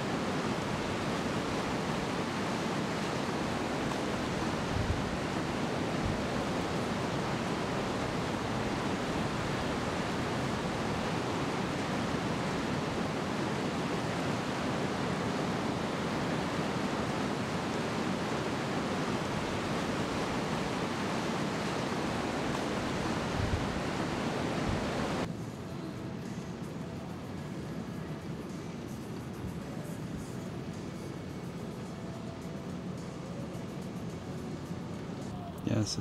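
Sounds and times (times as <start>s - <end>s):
creek rushing over rocks: 0.0s - 25.3s
ocean surf breaking: 0.0s - 25.3s.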